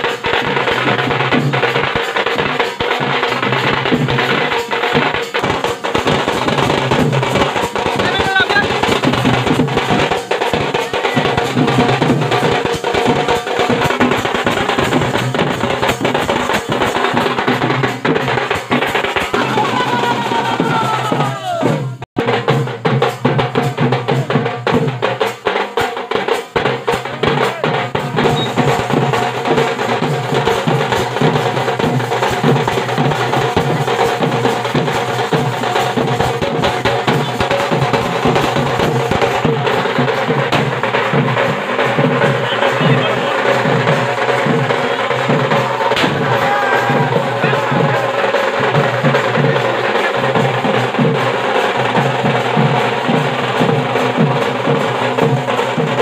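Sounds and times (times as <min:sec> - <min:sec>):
fast barrel drum playing: 0:00.0 - 0:56.0
snare drum: 0:00.0 - 0:56.0.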